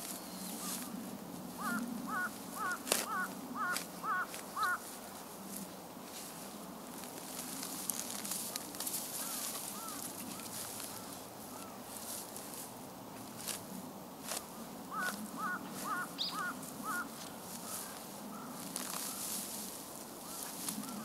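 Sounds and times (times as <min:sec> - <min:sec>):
shovel digging into soil: 0:02.6 - 0:04.5
bird calling short notes: 0:15.0 - 0:17.1.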